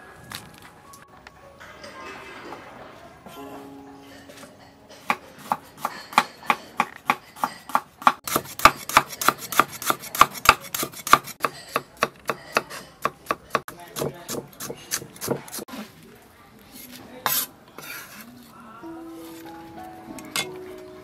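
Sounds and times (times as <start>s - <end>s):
cleaver chopping on wooden block: 5.5s - 12.7s.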